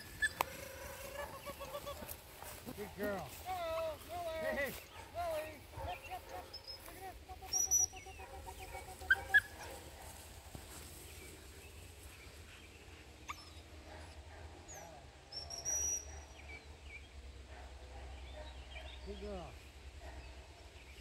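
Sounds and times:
puppy yipping: 0.0s - 2.1s, 7.4s - 9.8s.

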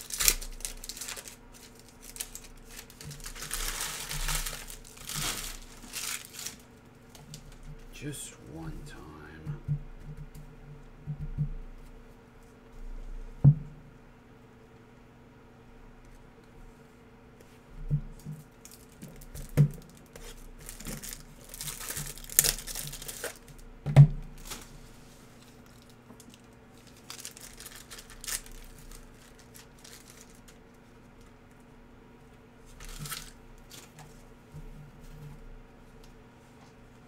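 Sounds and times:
foil wrappers tearing and crinkling: 0.0s - 7.6s, 18.4s - 23.6s, 24.4s - 24.8s, 25.4s - 30.7s, 32.7s - 34.0s
steady low hum: 0.0s - 37.0s.

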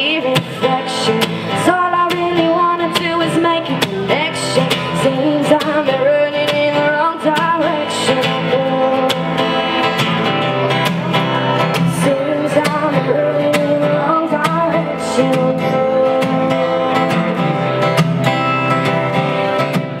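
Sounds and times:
woman singing: 0.0s - 10.2s, 10.9s - 17.8s
strummed acoustic guitar: 0.0s - 20.0s.

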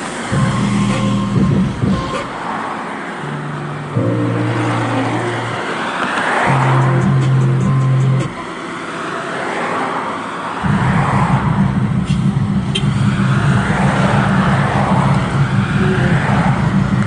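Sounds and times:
car engine and road rumble: 0.0s - 17.0s
rushing noise: 0.0s - 17.0s.

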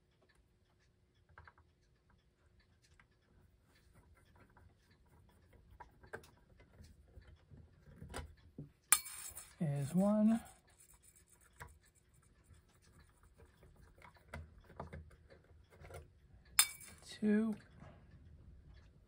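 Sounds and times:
screwdriver clicks and scrapes: 8.9s - 10.0s.

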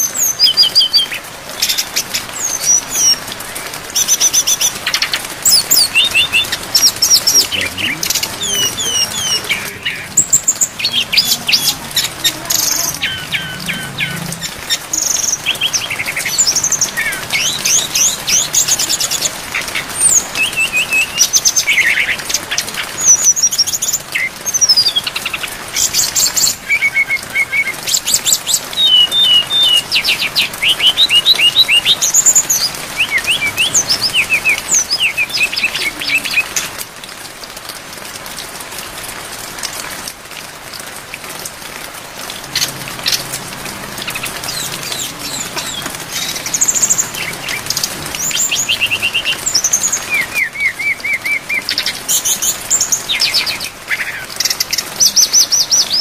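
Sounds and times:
rain hissing: 0.0s - 56.0s
bird singing trills: 4.0s - 19.4s, 23.0s - 36.7s, 44.0s - 56.0s.

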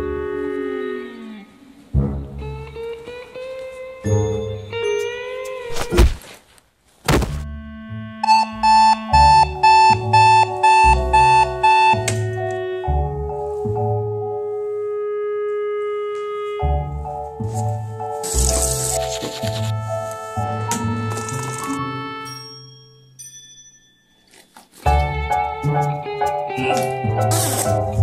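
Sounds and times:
music: 0.0s - 5.7s, 7.4s - 23.8s, 24.8s - 28.0s
thump: 7.1s - 7.4s
alarm clock beeping: 8.2s - 12.3s.

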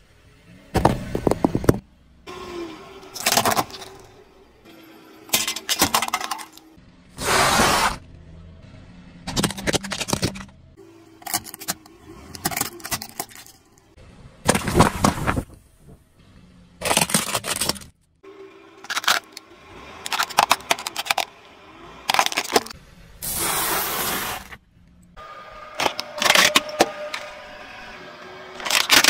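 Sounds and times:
objects crunching under car tyre: 3.2s - 4.1s, 14.4s - 16.0s, 16.8s - 18.0s, 18.8s - 19.4s, 22.0s - 22.8s, 28.5s - 29.0s.

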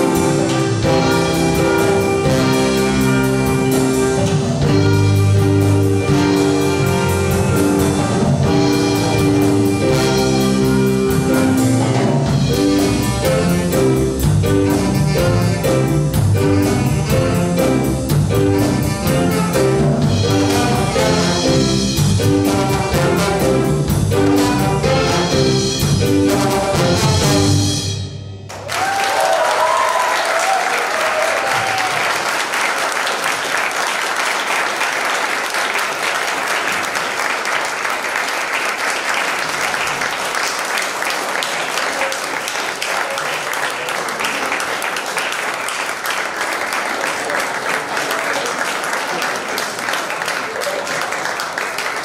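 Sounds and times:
jazz band playing: 0.0s - 29.0s
audience applauding: 28.5s - 52.0s.

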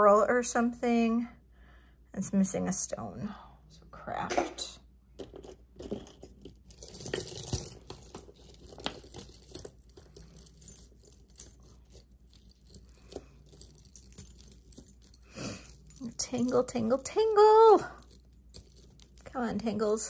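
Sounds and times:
jewelry clinking and jangling: 5.2s - 20.0s.

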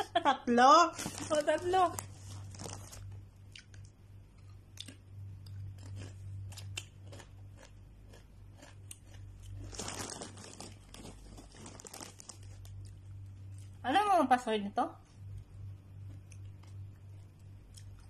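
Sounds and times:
steady low hum: 0.0s - 18.0s
tortilla chips crunched and chewed: 1.0s - 13.8s.

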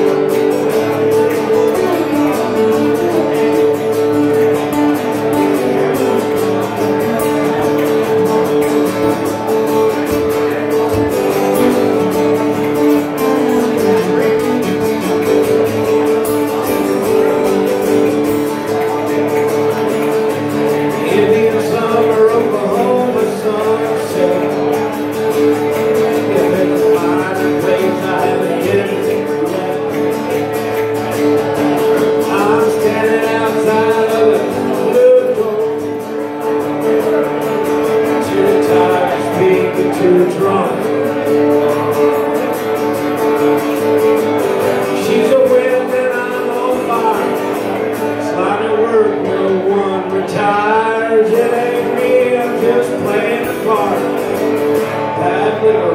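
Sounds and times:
man singing into a microphone: 0.0s - 42.6s, 44.2s - 55.9s
acoustic guitar strumming: 0.0s - 55.9s.

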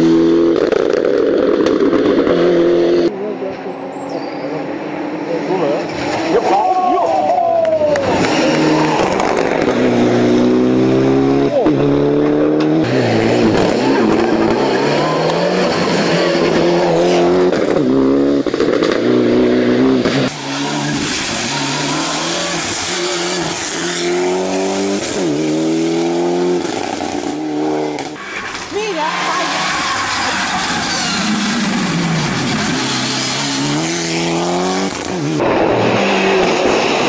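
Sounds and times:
rally car engine revving: 0.0s - 6.8s, 7.9s - 37.0s.

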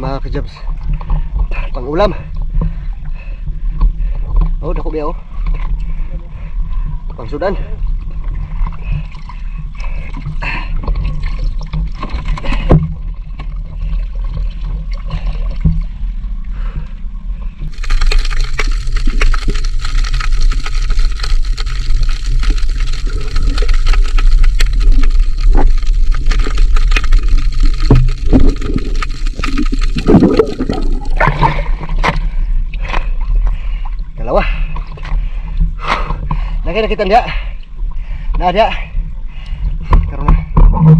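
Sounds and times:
steady low hum: 0.0s - 40.9s
sea water sloshing and splashing: 5.2s - 36.6s
underwater hissing crackle: 17.7s - 33.9s.

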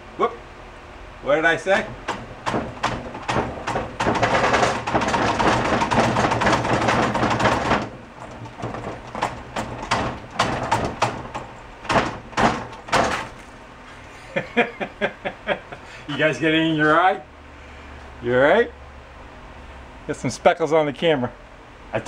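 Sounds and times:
knocks and clunks of lever: 1.9s - 13.4s.

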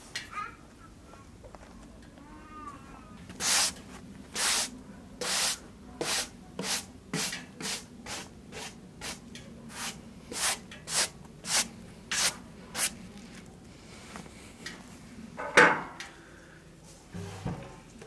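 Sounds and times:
hand sanding wood board: 4.4s - 9.2s.

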